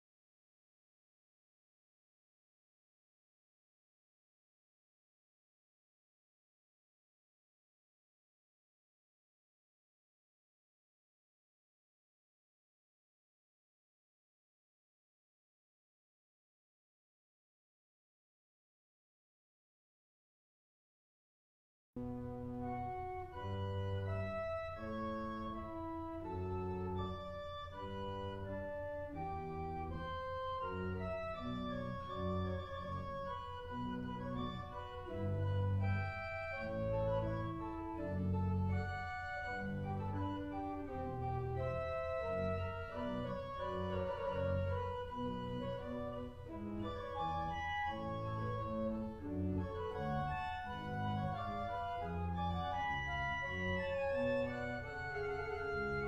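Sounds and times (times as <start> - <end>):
church organ piece: 22.0 - 56.0.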